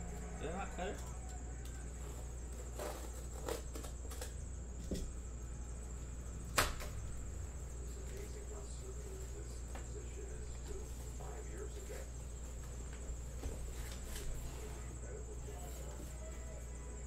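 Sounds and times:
low hum: 0.0 - 3.0
thin high whine: 0.0 - 17.0
knife slitting packing tape: 2.5 - 4.3.

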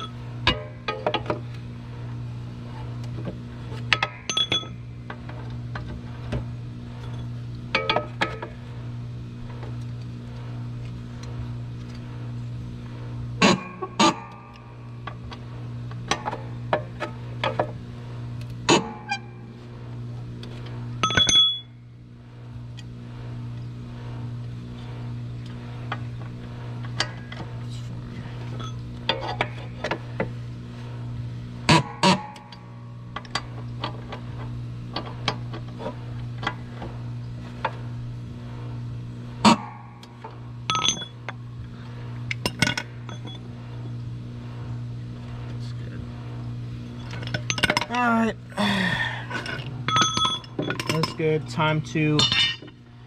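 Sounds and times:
steady low hum: 0.0 - 53.0
metal tool clicks and clanks: 49.4 - 51.4, 52.2 - 52.8.

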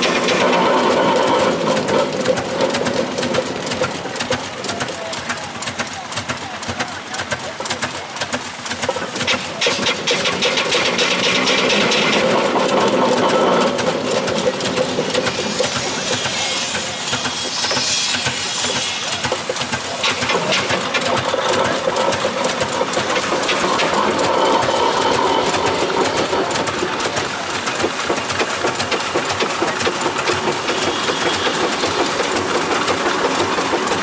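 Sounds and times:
steam hissing: 0.0 - 34.0
steam roller engine clatter: 0.0 - 34.0.

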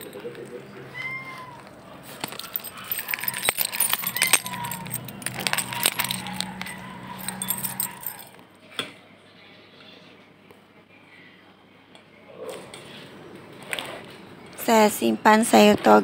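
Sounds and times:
plastic bag crinkling: 1.6 - 8.3
light metallic jingling: 2.0 - 8.4.

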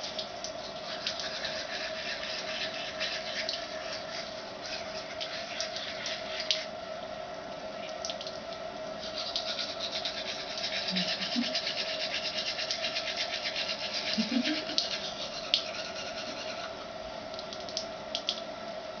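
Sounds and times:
steady low hum: 0.0 - 19.0
toothbrush scrubbing teeth: 0.7 - 6.7, 9.0 - 16.8.

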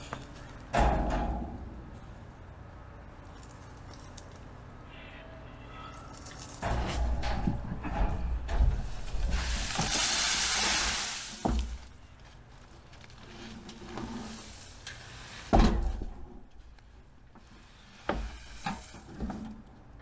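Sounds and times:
wheelbarrow rumbling and knocking: 6.5 - 16.7, 17.4 - 20.0
leaves and compost sliding out: 8.8 - 15.6.

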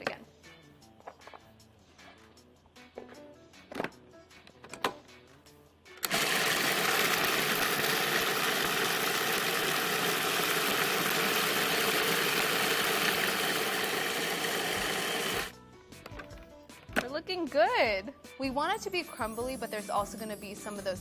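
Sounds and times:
food processor grinding: 6.0 - 15.5.

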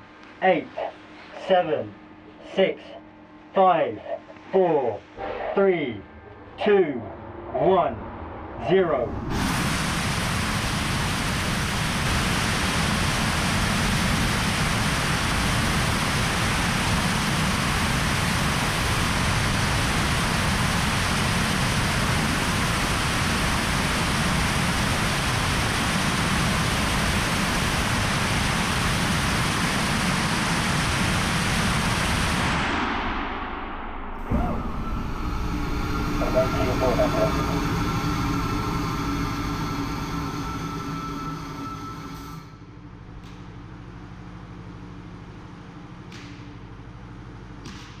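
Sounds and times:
rocket engine firing: 9.0 - 42.5.

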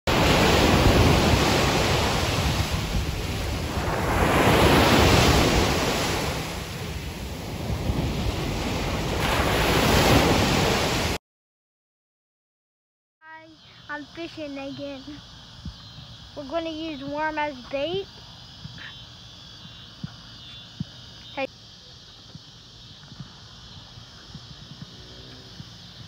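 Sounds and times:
surf breaking on beach: 0.1 - 11.2.

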